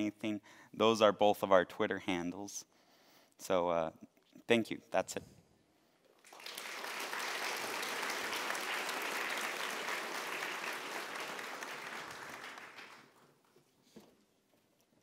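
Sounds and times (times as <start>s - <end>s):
audience applauding: 6.2s - 13.4s.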